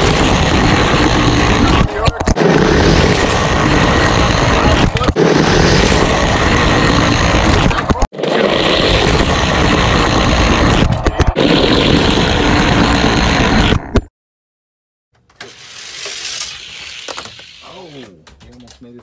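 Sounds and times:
toy car rolling on plastic track: 15.3s - 18.7s.

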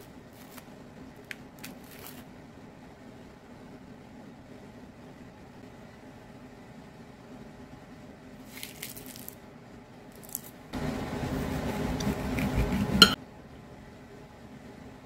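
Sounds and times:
mandarin segments tearing: 0.0s - 2.3s, 8.5s - 9.4s, 10.2s - 10.6s
knife cutting fruit on a plate: 11.7s - 13.2s.

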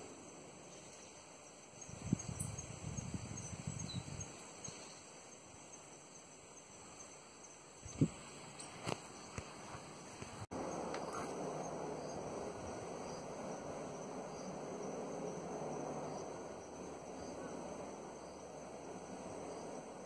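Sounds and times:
distant helicopter drone: 8.7s - 20.0s.

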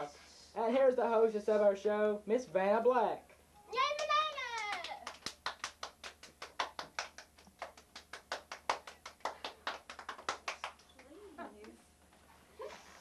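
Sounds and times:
people clapping: 3.8s - 11.8s.

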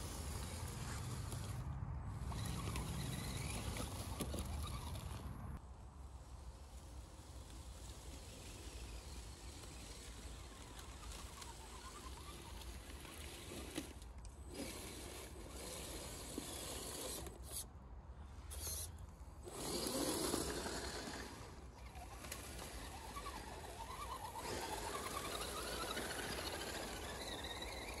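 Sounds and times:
electric motors whining: 7.7s - 17.6s, 18.4s - 28.0s.

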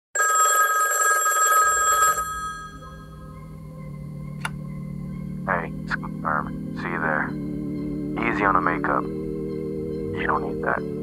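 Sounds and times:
rotary telephone bell ringing: 0.2s - 2.9s.

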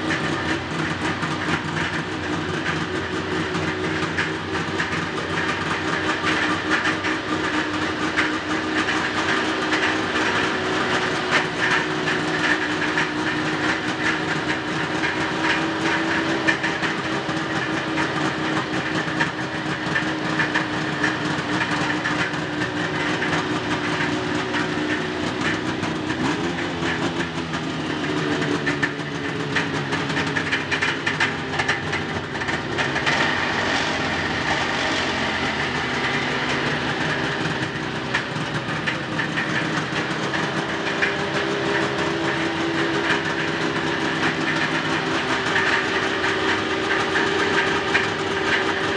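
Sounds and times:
snowmobile engine idling: 0.0s - 48.9s.

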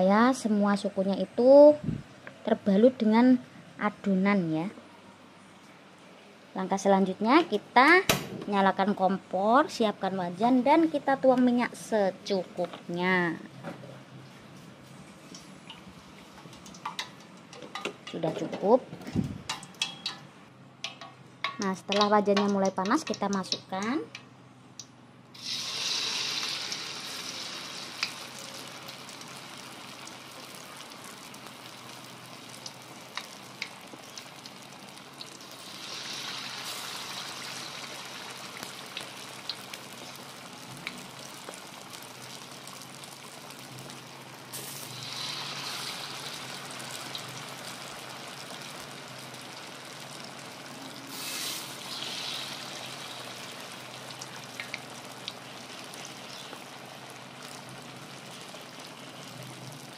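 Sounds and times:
deep-frying sizzle with pops: 15.0s - 59.9s.

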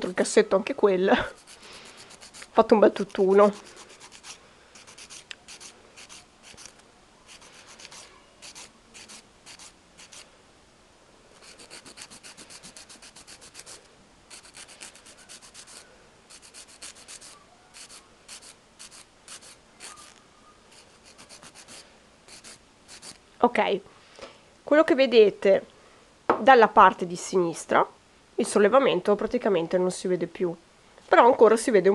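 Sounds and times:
nail file rasping: 1.2s - 10.3s, 11.4s - 23.2s.

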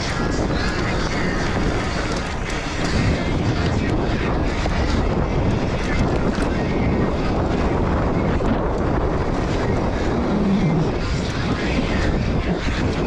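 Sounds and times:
bike clicks and rattles: 0.0s - 13.0s
bike tyre rumble: 0.0s - 13.0s
wind buffeting microphone: 0.0s - 13.0s.

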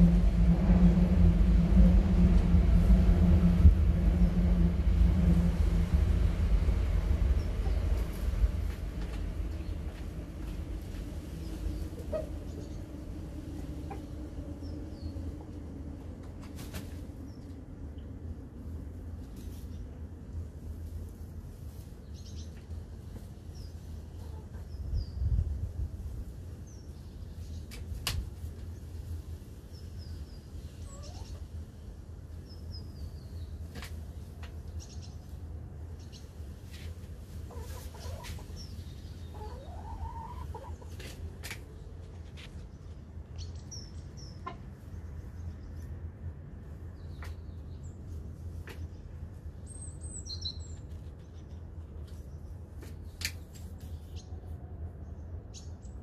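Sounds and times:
steady low rumble: 0.0s - 56.0s
hens clucking: 37.5s - 38.6s, 39.3s - 41.3s, 44.4s - 44.8s.

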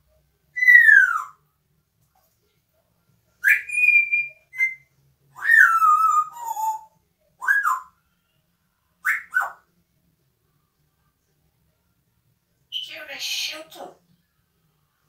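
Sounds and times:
parrot whistling: 0.6s - 1.4s, 3.4s - 7.9s, 9.0s - 9.6s.

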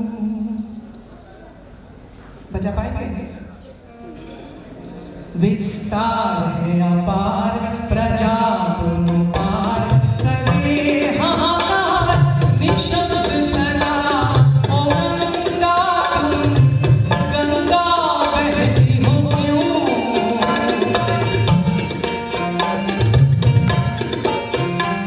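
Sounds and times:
woman singing folk melody: 5.4s - 21.0s
tabla and hand percussion: 7.3s - 25.0s.

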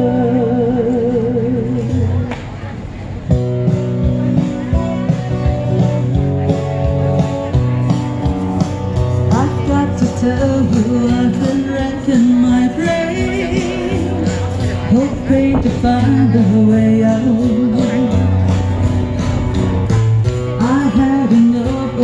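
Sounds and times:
person singing: 0.0s - 2.2s, 9.2s - 18.6s, 20.5s - 22.0s
amplified country guitar music: 3.3s - 22.0s.

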